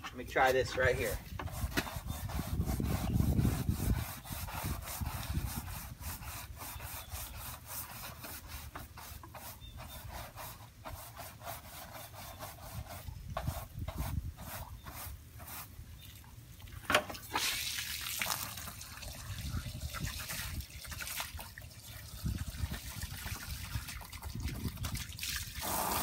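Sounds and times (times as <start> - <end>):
brush scrubbing siding: 0.0 - 16.0, 17.1 - 26.0
garden hose spraying water: 17.1 - 26.0.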